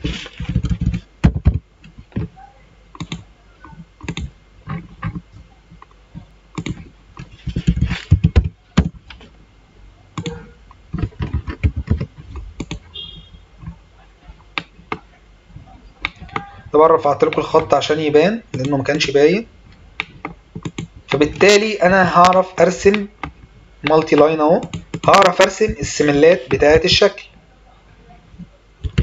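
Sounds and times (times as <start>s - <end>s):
keyboard typing: 0.0s - 2.3s, 2.9s - 9.2s, 10.2s - 13.8s, 16.0s - 19.2s, 20.0s - 27.1s, 28.8s - 29.0s
mouse clicking: 2.9s - 5.2s, 5.8s - 9.0s, 10.2s - 10.4s, 11.0s - 12.8s, 16.0s - 16.5s, 18.5s - 19.2s, 20.0s - 26.9s.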